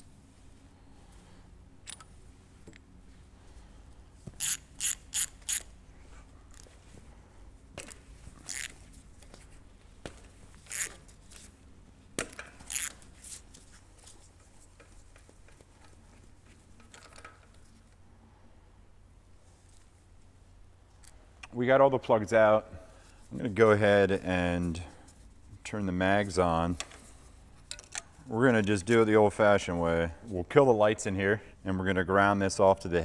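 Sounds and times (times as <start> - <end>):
ratchet wrench clicking: 4.4 - 5.7, 8.5 - 8.8, 10.7 - 11.0, 12.4 - 13.0.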